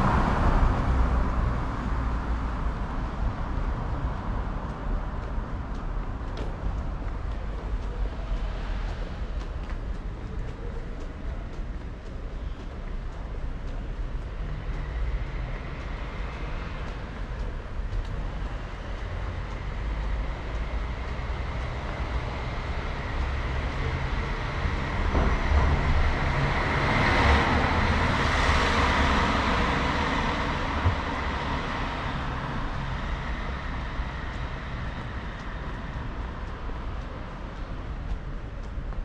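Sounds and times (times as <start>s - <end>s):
traffic rumble: 0.0s - 39.0s.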